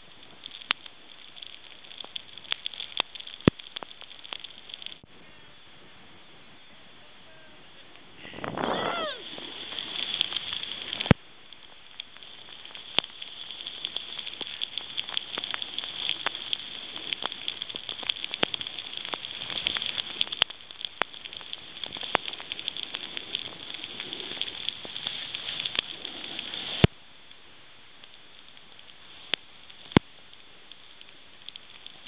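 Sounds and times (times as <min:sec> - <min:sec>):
snowboard carving through snow: 0:07.3 - 0:11.2, 0:12.2 - 0:20.4, 0:21.4 - 0:26.9.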